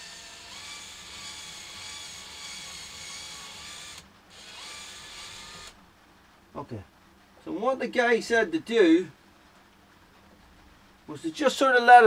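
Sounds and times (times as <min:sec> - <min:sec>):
cordless drill motor whine: 0:00.0 - 0:05.8.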